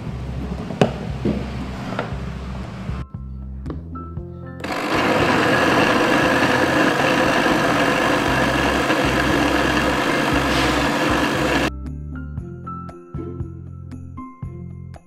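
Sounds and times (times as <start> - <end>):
blender running: 4.6 - 11.7.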